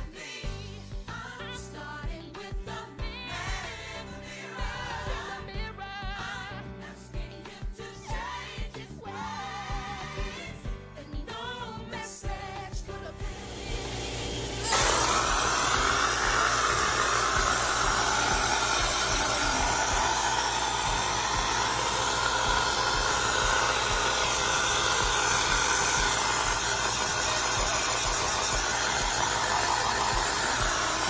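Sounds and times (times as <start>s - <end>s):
spray gun hissing: 13.2s - 31.0s.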